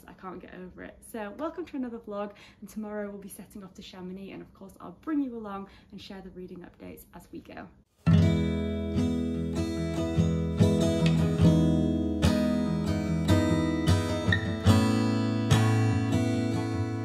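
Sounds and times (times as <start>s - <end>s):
strummed acoustic guitar: 8.0s - 17.0s.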